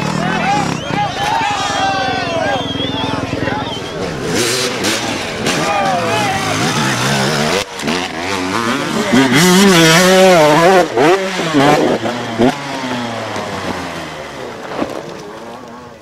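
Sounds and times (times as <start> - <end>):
dirt bike engine revving: 0.0 - 15.6.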